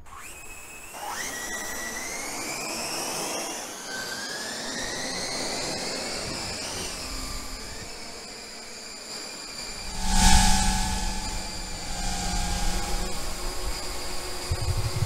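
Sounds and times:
drone motors whining: 9.6s - 15.0s.

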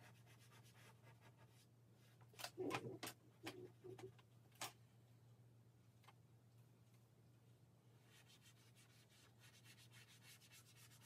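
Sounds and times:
scratchy drawing strokes on paper: 0.0s - 1.7s, 8.0s - 11.0s
low room hum: 0.0s - 11.0s.

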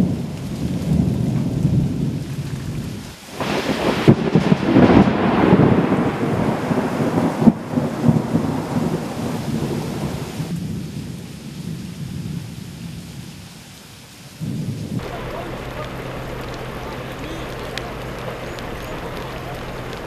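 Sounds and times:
rolling thunder: 0.0s - 10.9s, 14.4s - 20.0s
heavy rain: 0.0s - 20.0s
steady noise with low hum: 15.0s - 20.0s.

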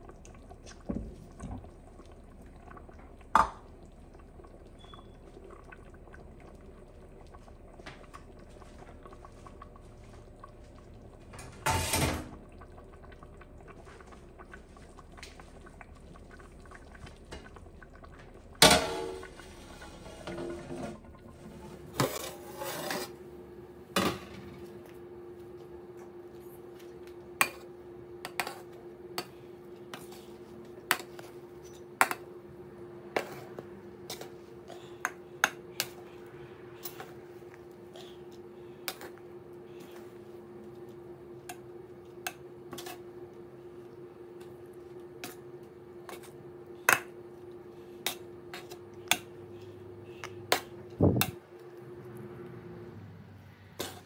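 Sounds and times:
steady hum: 0.0s - 54.0s
plastic scoop scraping a metal pot: 22.0s - 23.2s.

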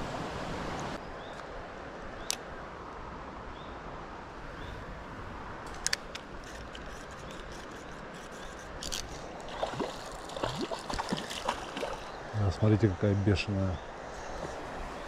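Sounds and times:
flowing river water: 6.3s - 15.0s.

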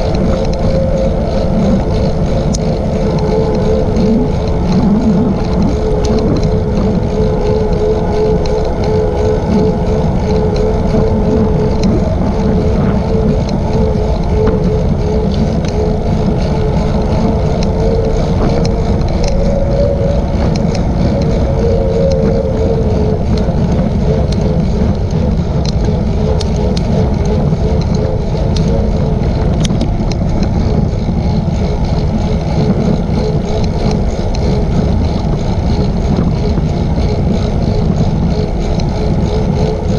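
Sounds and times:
wavering hum: 0.0s - 39.9s
wind rush on microphone: 0.0s - 39.9s.

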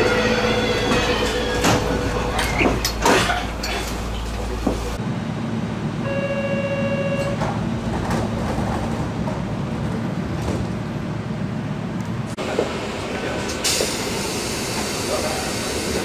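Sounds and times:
train doors closing with knock: 0.0s - 5.0s, 6.6s - 11.0s
train low hum: 0.0s - 16.0s
door-closing buzzer: 6.1s - 7.4s.

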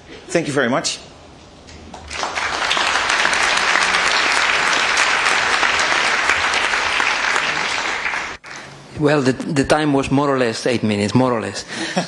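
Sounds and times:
audience applauding: 2.0s - 8.7s.

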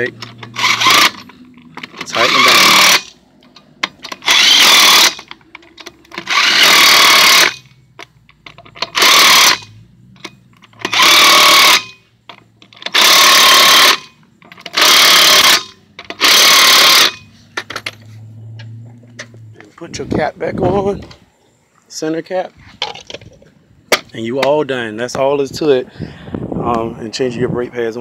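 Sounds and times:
impact wrench hammering: 0.2s - 3.1s, 6.1s - 7.6s, 12.8s - 18.0s.

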